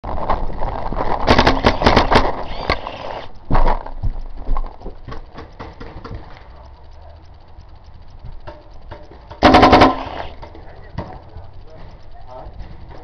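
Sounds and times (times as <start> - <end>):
gear clattering: 0.1 - 13.0
running footsteps on dry ground: 3.4 - 6.0.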